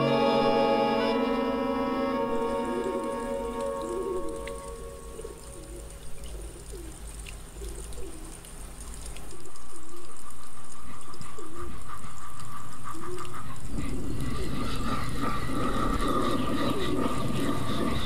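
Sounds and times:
steady hum with whine: 0.0s - 10.1s
person imitating pigeon coos: 2.2s - 8.4s.

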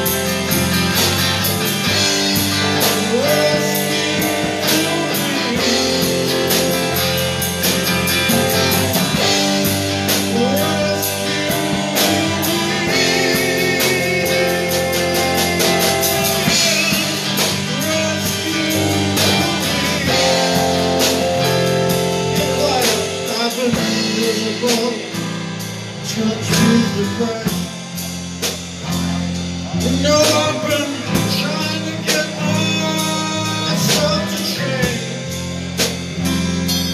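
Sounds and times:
acoustic guitar: 0.0s - 27.8s
bass guitar: 0.0s - 36.9s
drum kit cymbal beat: 0.0s - 36.9s
electric guitar: 0.0s - 36.9s.

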